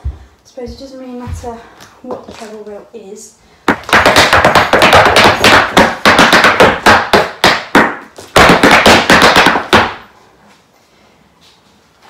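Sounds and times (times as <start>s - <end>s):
hard shoes tapping on hard floor: 0.0s - 2.5s, 3.6s - 10.1s.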